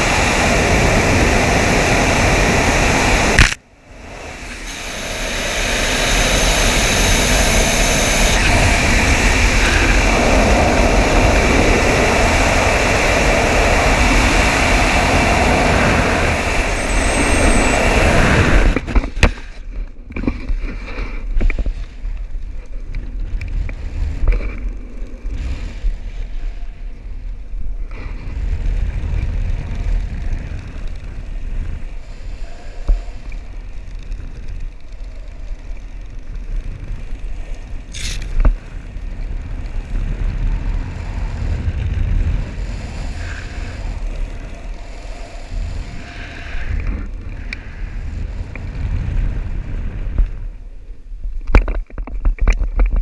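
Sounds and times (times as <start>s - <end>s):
wind rushing over microphone: 0.0s - 53.0s
sharp crack: 3.3s - 3.7s.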